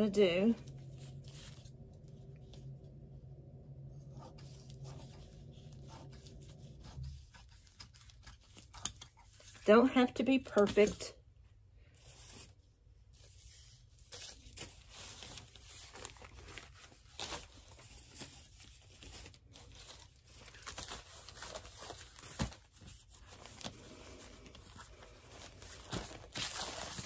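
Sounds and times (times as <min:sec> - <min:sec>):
plastic tablecloth rustling: 0:12.0 - 0:27.0.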